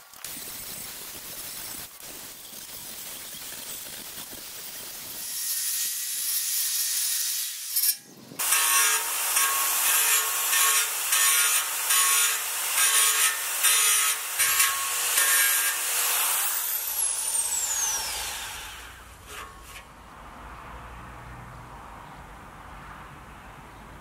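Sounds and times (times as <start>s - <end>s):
belt sander grinding steel: 4.4s - 19.9s.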